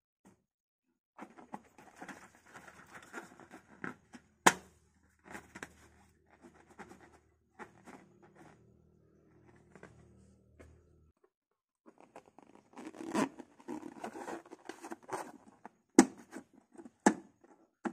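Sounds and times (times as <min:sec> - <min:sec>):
hands rubbing rubber balloon: 0:11.9 - 0:15.4.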